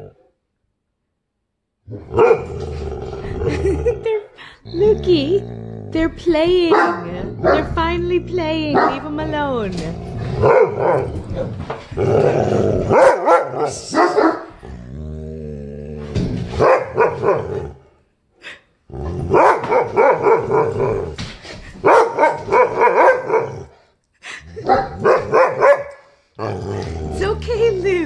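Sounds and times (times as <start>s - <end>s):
dog growling: 1.9s - 18.0s, 18.9s - 21.2s, 22.2s - 28.0s
poodle barking: 2.1s - 2.5s, 6.7s - 7.7s, 8.6s - 9.1s, 10.4s - 11.5s, 12.9s - 14.6s, 16.6s - 17.6s, 19.3s - 21.0s, 21.8s - 23.6s, 24.7s - 26.1s.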